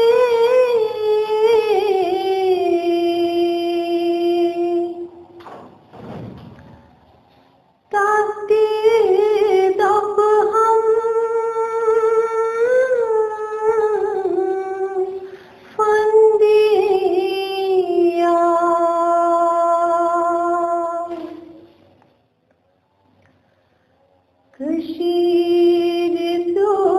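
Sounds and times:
woman singing unaccompanied: 0.0 - 5.3, 7.9 - 21.7, 24.5 - 26.9.

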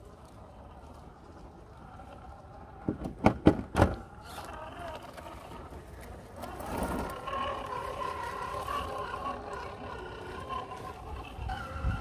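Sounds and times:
electric motor and gearbox whining: 4.0 - 12.0.

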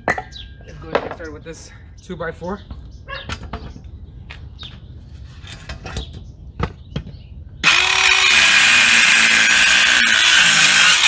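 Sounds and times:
circular saw cutting wood: 7.6 - 11.0.

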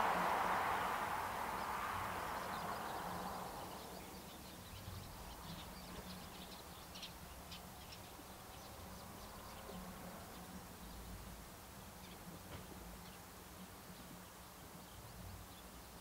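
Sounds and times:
distant jet engines roaring: 0.0 - 4.4.

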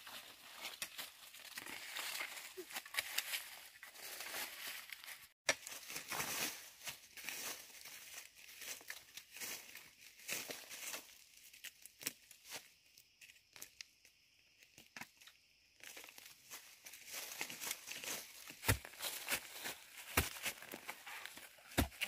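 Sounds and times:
dry leaves crackling and rustling: 0.0 - 11.6, 15.8 - 22.0
shovel striking soil: 18.5 - 22.0.

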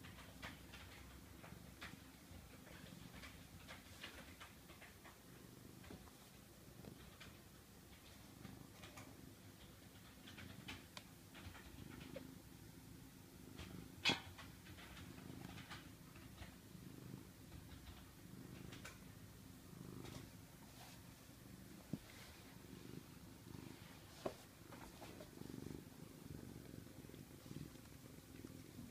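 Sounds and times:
cat purring: 0.0 - 28.9.

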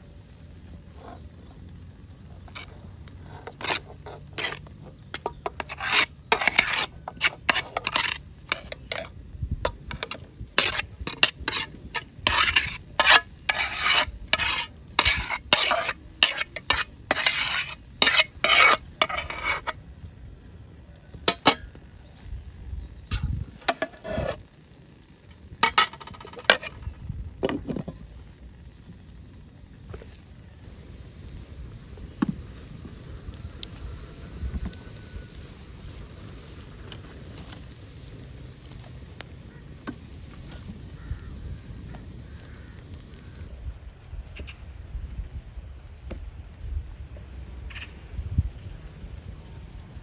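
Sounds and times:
metal spoon scraping a pot: 2.4 - 19.8, 21.3 - 21.8, 23.1 - 24.4, 25.6 - 26.9
pot and lid clanking: 5.2 - 9.1, 21.3 - 21.7, 25.6 - 26.8.

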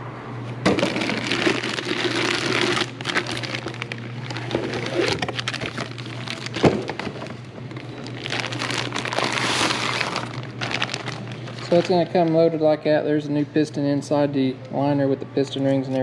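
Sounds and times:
plastic bag crinkling: 0.7 - 12.5.

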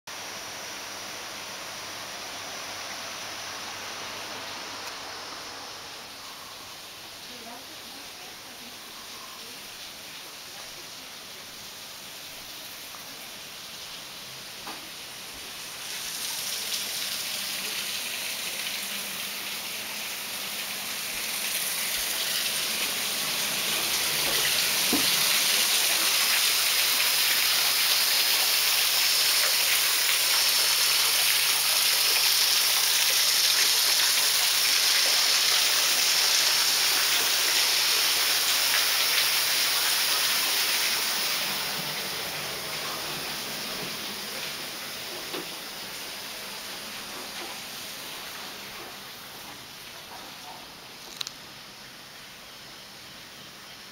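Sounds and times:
hiss of falling water: 0.1 - 53.9.

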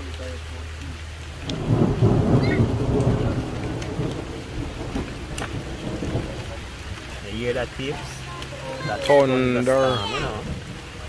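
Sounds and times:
steady rain: 0.0 - 11.0
thunderclap: 1.4 - 7.3, 10.2 - 11.0.

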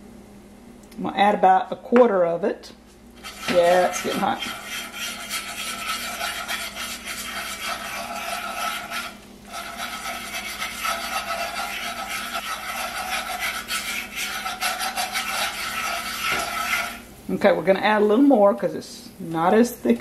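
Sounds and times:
whisk scraping a skillet: 3.2 - 17.1.

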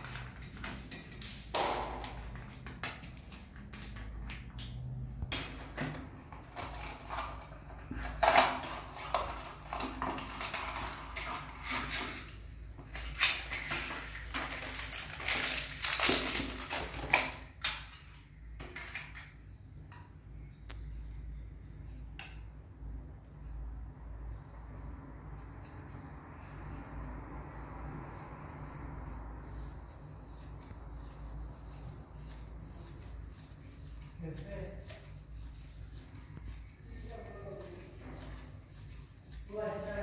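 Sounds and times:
paper and cardboard rustling: 6.0 - 17.5, 27.5 - 40.0.

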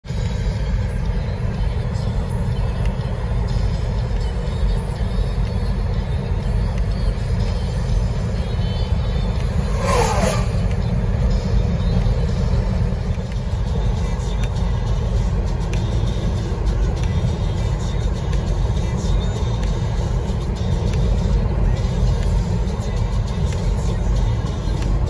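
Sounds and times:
car road noise on wet road: 0.0 - 25.0.

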